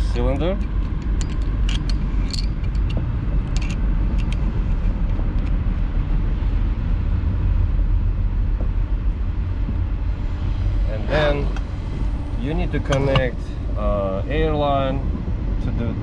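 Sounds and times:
steady low rumble: 0:00.0 - 0:16.0
light metallic clinks: 0:00.3 - 0:04.4.

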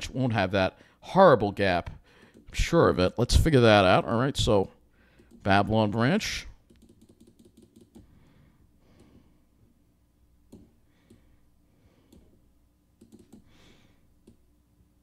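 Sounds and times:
computer mouse clicks: 0:05.2 - 0:05.4, 0:06.7 - 0:08.1, 0:12.1 - 0:12.3, 0:13.0 - 0:13.5.

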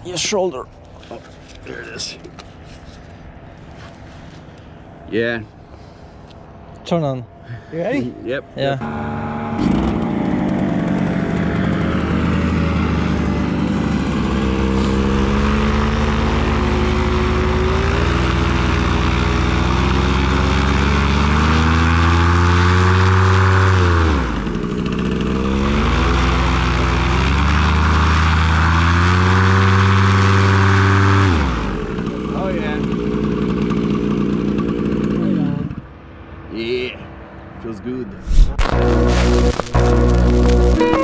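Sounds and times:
two-stroke engine revving: 0:08.8 - 0:35.9, 0:38.6 - 0:41.0.

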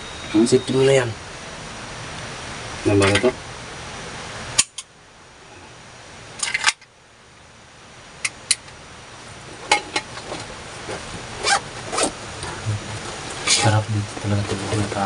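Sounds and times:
faint hiss: 0:00.0 - 0:15.0.

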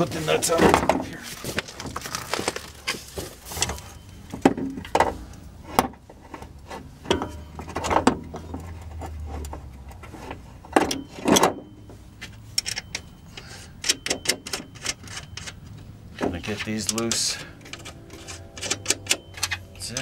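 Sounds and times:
metal clicks and knocks: 0:13.8 - 0:20.0.

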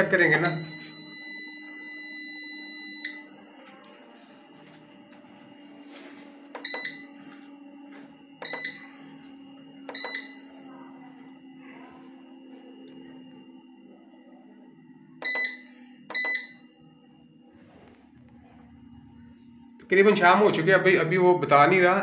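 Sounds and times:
steady low hum: 0:00.0 - 0:22.0
touch-panel buttons beeping: 0:06.4 - 0:07.2, 0:08.4 - 0:10.6, 0:15.2 - 0:16.7.

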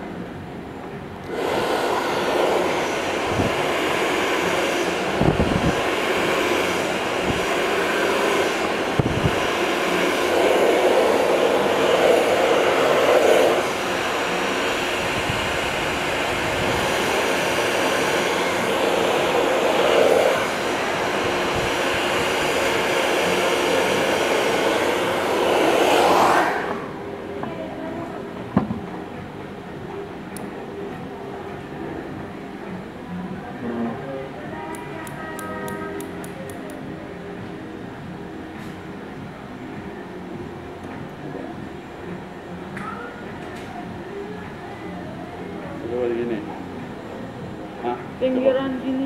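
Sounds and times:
hair dryer blowing: 0:01.2 - 0:27.0.

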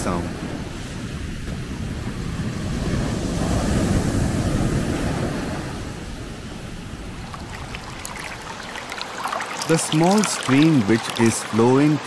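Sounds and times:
surf breaking against rocks: 0:06.8 - 0:11.9.

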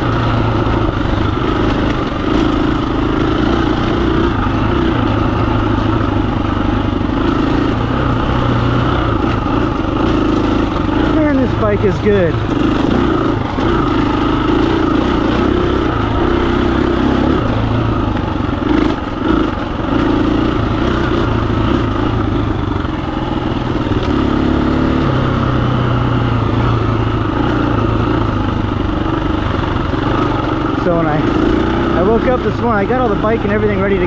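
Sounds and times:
motorcycle engine running: 0:00.0 - 0:34.0.

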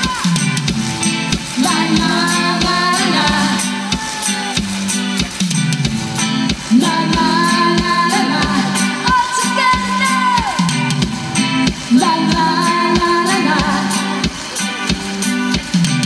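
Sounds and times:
woman singing: 0:00.0 - 0:00.5, 0:01.3 - 0:04.6, 0:06.6 - 0:10.7, 0:11.7 - 0:15.0
electric guitar: 0:00.0 - 0:16.0
steady drum beat: 0:00.0 - 0:16.0.

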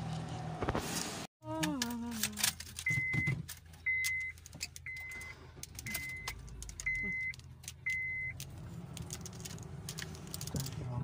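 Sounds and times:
car engine hum: 0:01.4 - 0:11.0
car warning chime beeping: 0:02.8 - 0:08.4.

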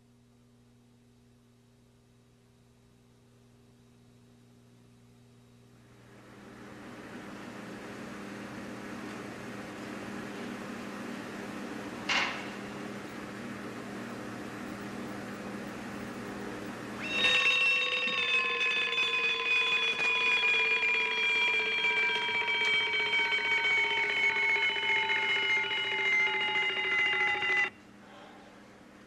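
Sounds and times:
alarm clock bell ringing: 0:17.0 - 0:27.7.

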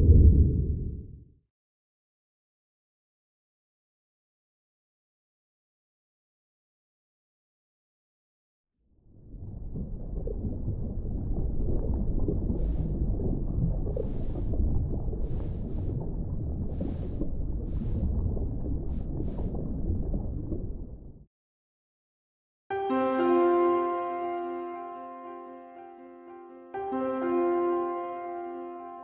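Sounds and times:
low underwater water rumble: 0:00.0 - 0:01.3, 0:09.0 - 0:21.3.

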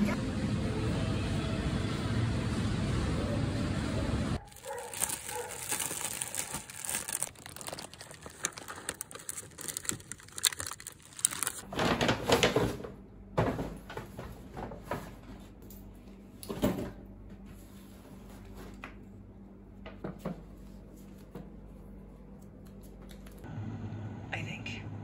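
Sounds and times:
plastic bags crinkling: 0:04.4 - 0:12.3
bags rustled and knocked: 0:04.4 - 0:12.8.

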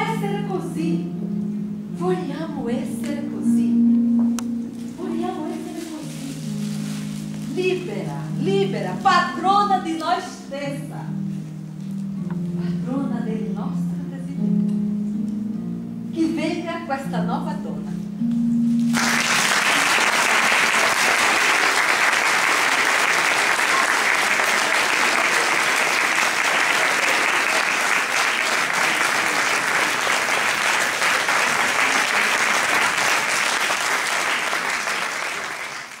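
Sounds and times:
audience applauding: 0:18.9 - 0:36.0.

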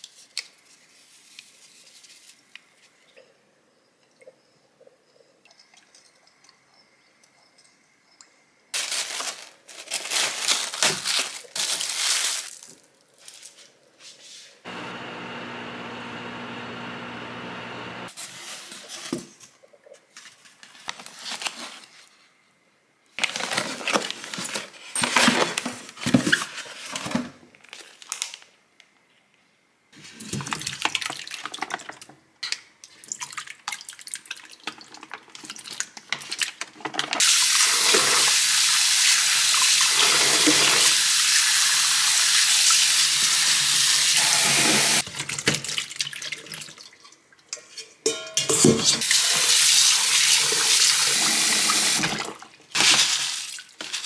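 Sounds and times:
steady hum: 0:14.7 - 0:18.1
kitchen handling noises: 0:47.6 - 0:49.1.

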